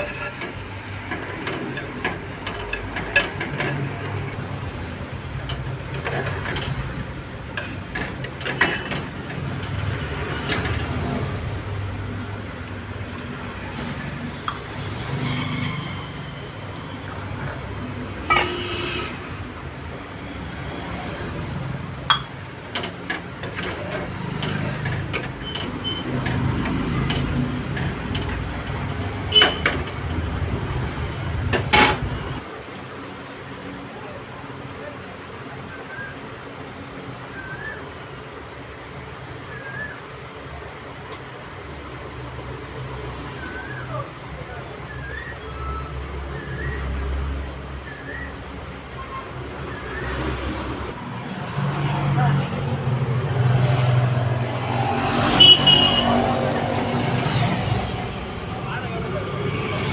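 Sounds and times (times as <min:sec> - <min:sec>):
metal ladle scraping a pot: 0:00.0 - 0:04.4, 0:07.5 - 0:11.0, 0:18.2 - 0:19.4.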